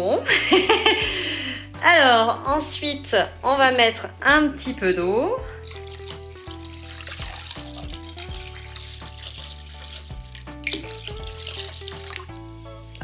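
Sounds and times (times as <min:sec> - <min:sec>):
water splashing into paint: 0:05.6 - 0:13.0.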